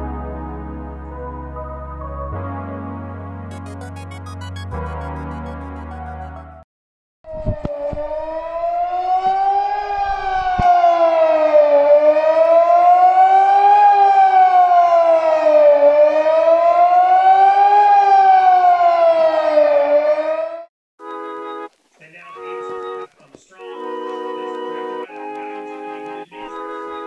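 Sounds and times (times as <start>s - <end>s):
siren wailing: 7.3s - 21.6s, 22.4s - 27.0s.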